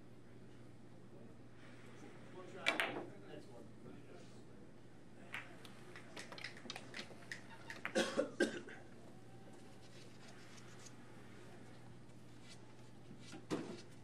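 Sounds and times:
billiard balls clicking: 0:02.6 - 0:03.0, 0:05.3 - 0:08.0
person coughing: 0:07.9 - 0:08.8.

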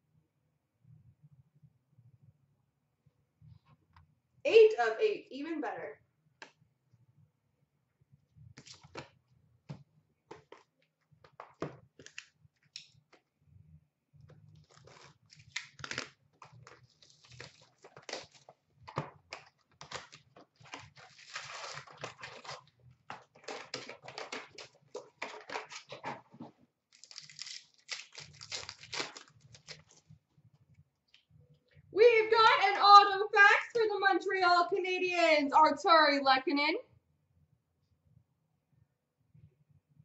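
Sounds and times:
foil wrappers rustling and tearing: 0:14.6 - 0:18.5, 0:19.3 - 0:26.2, 0:26.9 - 0:30.0.

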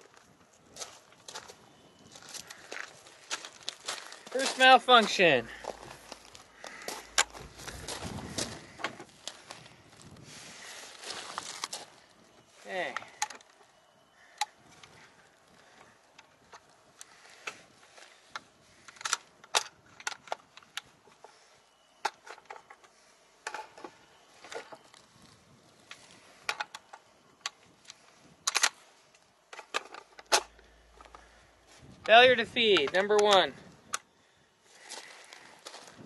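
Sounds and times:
rifle action clicking and clacking: 0:28.5 - 0:28.8, 0:32.7 - 0:34.0.

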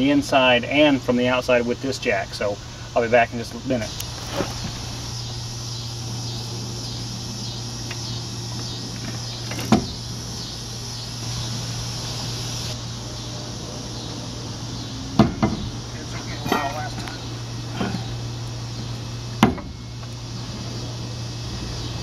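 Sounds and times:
insects chirping: 0:00.0 - 0:22.0
low hum: 0:02.4 - 0:22.0
sharp knocks: 0:15.2 - 0:15.7, 0:19.4 - 0:19.8.

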